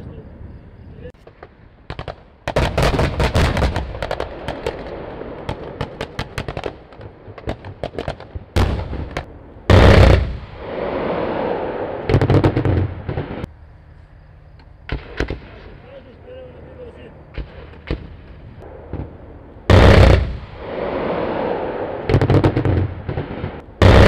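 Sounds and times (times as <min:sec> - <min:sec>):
gunfire volleys: 0:01.2 - 0:13.5, 0:14.9 - 0:15.8, 0:17.3 - 0:24.0
loud explosion with rolling echo: 0:01.2 - 0:13.5, 0:17.3 - 0:24.0.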